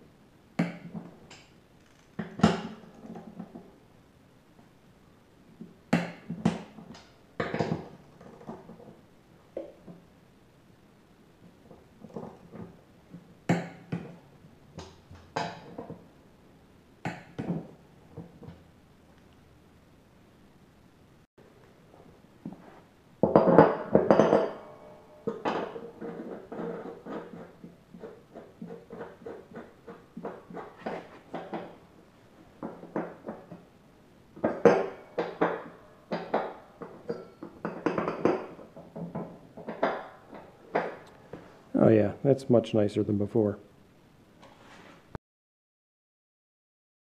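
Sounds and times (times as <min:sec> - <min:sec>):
metallic clanks and knocks: 0:23.2 - 0:31.8, 0:34.4 - 0:41.2.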